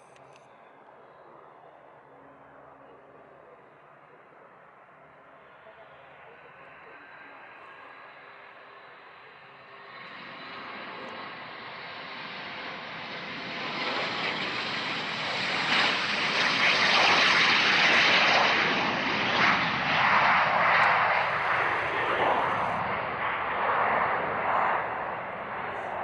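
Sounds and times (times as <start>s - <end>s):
jet taking off: 5.5s - 26.0s.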